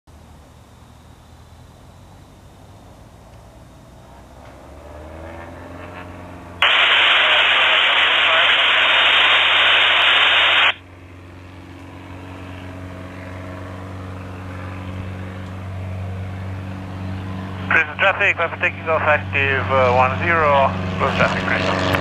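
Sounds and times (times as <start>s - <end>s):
airplane engine running: 0.1s - 22.0s
radio static burst: 6.6s - 10.8s, 17.7s - 20.5s.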